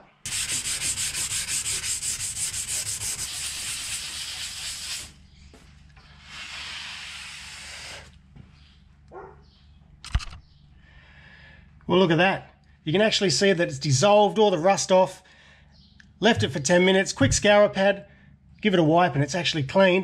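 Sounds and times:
scour pad scrubbing steel: 0:00.3 - 0:05.1
paper towel wiping surface: 0:00.3 - 0:05.2, 0:06.2 - 0:08.1.

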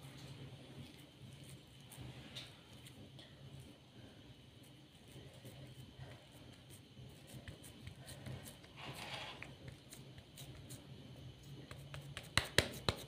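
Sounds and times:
hands pressing mixture into mould: 0:11.6 - 0:13.0.

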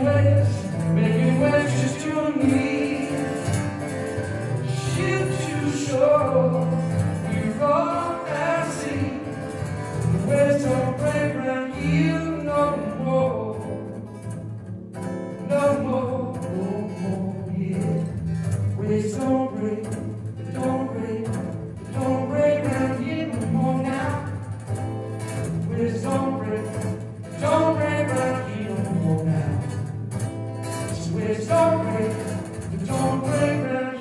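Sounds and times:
person singing: 0:00.0 - 0:03.6, 0:04.6 - 0:13.8, 0:30.9 - 0:34.0
acoustic guitar strumming: 0:00.0 - 0:34.0.

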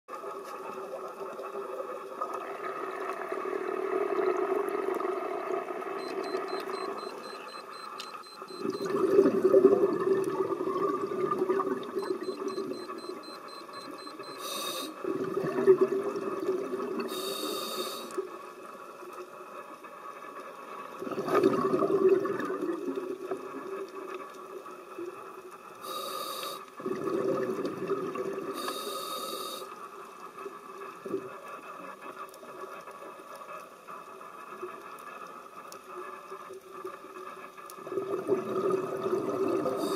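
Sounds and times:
steady underwater hum: 0:00.1 - 0:39.9
exhaled bubbles rushing: 0:08.6 - 0:12.7, 0:15.0 - 0:17.1, 0:21.0 - 0:23.6, 0:26.8 - 0:28.5, 0:37.8 - 0:39.9
hissing regulator inhalations: 0:12.2 - 0:15.0, 0:17.1 - 0:18.2, 0:25.8 - 0:26.7, 0:28.6 - 0:29.8.

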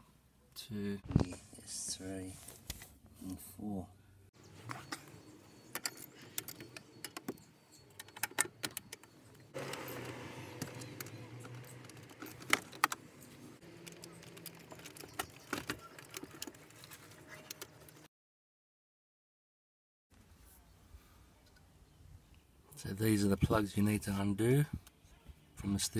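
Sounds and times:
metal and plastic clicks and rattles: 0:05.7 - 0:18.0.

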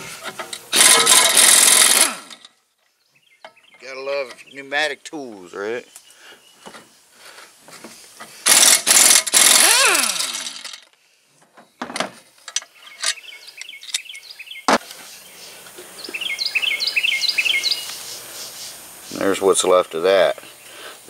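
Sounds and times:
pneumatic wrench whirring: 0:00.2 - 0:02.5, 0:08.4 - 0:10.9
bird chirping: 0:02.7 - 0:07.1, 0:12.5 - 0:21.0.

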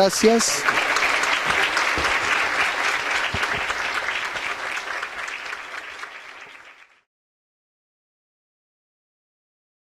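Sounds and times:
audience applauding: 0:00.0 - 0:07.1.

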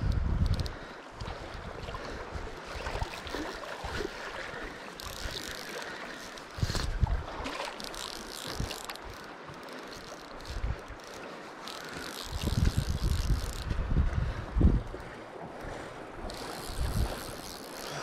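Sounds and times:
fly reel ratcheting clicks: 0:00.0 - 0:00.8, 0:04.7 - 0:06.9, 0:07.5 - 0:13.8, 0:16.2 - 0:18.0
wind buffeting microphone: 0:00.0 - 0:05.7, 0:06.5 - 0:09.2, 0:11.9 - 0:17.6.

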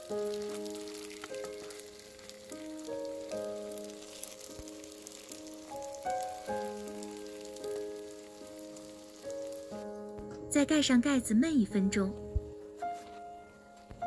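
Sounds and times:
pancakes sizzling in oil: 0:00.0 - 0:10.3
slow background music: 0:00.0 - 0:14.0.

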